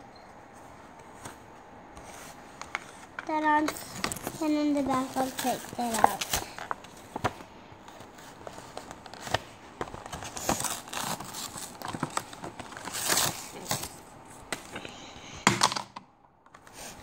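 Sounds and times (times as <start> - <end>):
plastic packaging crinkling: 3.3 - 14.1.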